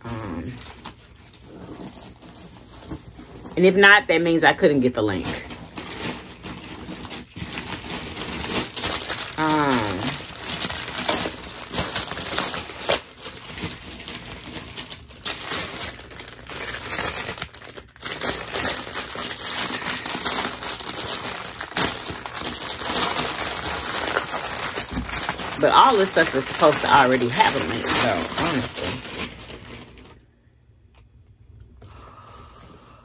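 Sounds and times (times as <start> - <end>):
paper wrapping crinkling: 0.5 - 30.3.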